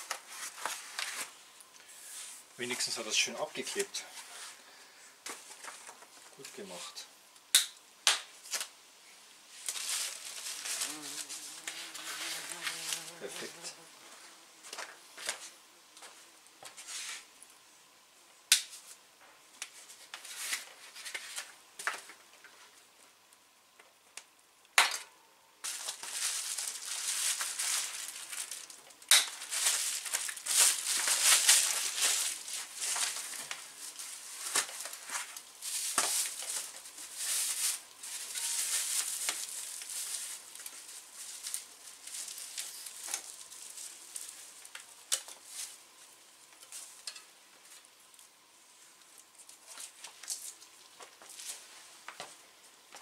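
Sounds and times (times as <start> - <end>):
plastic wrap crinkling: 9.5 - 13.2, 25.6 - 45.8.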